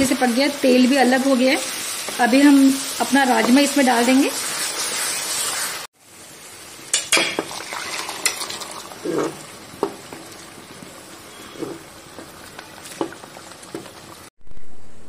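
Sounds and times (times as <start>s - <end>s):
gravy sizzling in a pan: 0.0s - 14.3s
spatula knocking and scraping pan: 3.3s - 3.8s.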